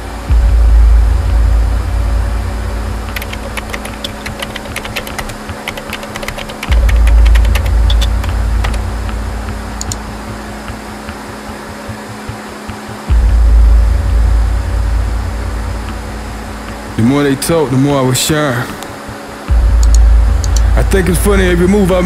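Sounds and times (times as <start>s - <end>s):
deep sub-bass booms: 0.0s - 3.6s, 6.7s - 10.8s, 13.1s - 17.1s, 19.5s - 22.0s
steady low hum: 0.0s - 22.0s
crackling clicks: 3.1s - 9.2s, 9.8s - 13.0s, 19.8s - 20.7s.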